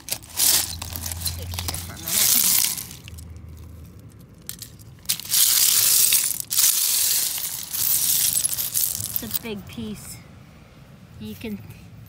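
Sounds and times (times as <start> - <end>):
shells and pebbles crunching: 0.0 - 9.4.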